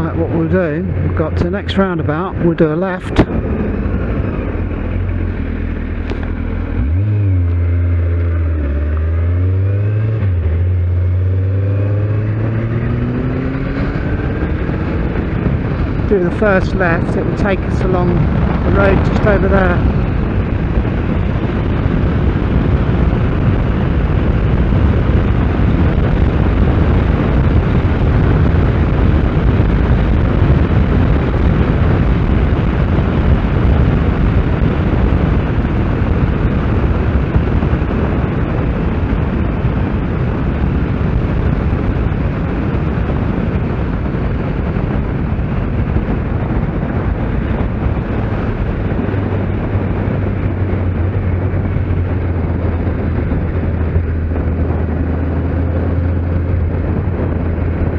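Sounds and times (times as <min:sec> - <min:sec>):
motorcycle engine running: 0:00.0 - 0:57.9
wind rush on microphone: 0:00.0 - 0:57.9.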